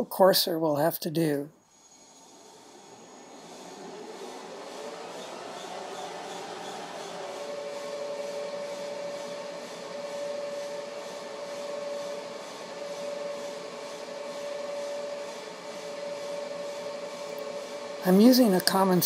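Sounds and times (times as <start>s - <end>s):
metal lathe whining: 1.6s - 19.0s
knurling wheels rolling on metal: 1.8s - 10.9s.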